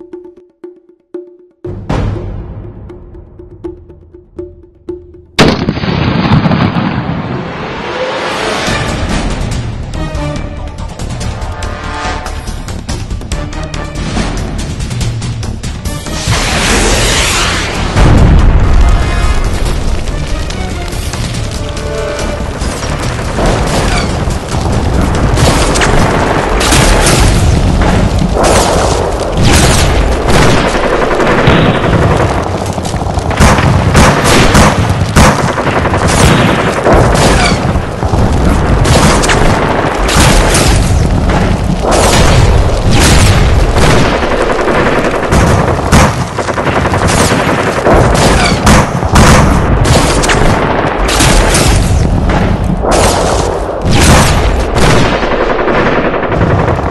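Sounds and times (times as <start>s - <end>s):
rifle shots: 25.1s - 56.9s
deep booms: 47.9s - 55.2s.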